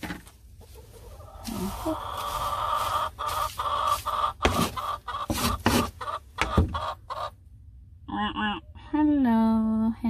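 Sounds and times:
scoop scraping wood shavings: 0:01.4 - 0:06.0.

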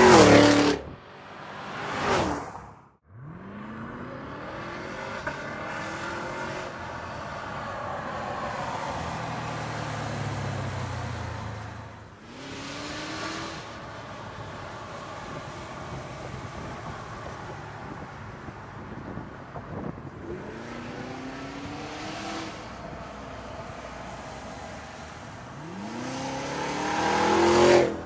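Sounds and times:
car engine accelerating: 0:24.0 - 0:28.0.

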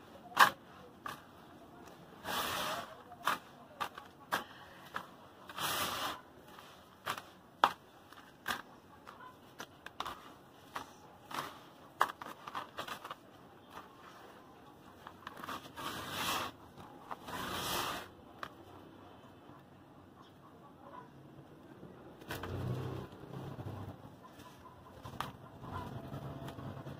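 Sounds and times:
rustling swishes of soil: 0:00.0 - 0:07.4, 0:15.0 - 0:18.2
hands digging through gritty soil: 0:00.0 - 0:18.6.

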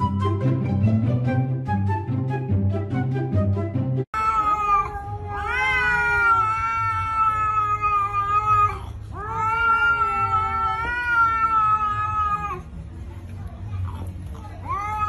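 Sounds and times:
cat yowling: 0:04.2 - 0:12.7, 0:14.6 - 0:15.0.

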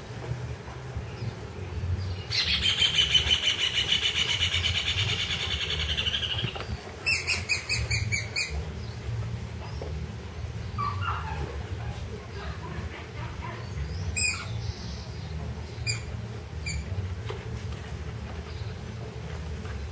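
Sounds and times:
bird singing rapid trills: 0:02.0 - 0:09.0.

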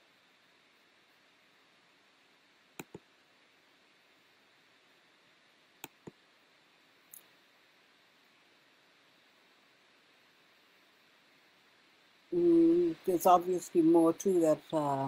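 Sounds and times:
faint steady hiss: 0:00.0 - 0:15.0
computer mouse clicks: 0:02.8 - 0:03.1, 0:05.8 - 0:06.2.

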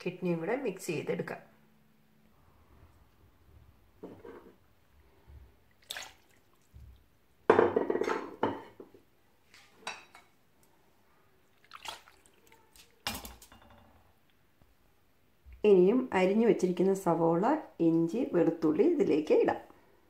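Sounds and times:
clinks and splats: 0:11.6 - 0:13.8.

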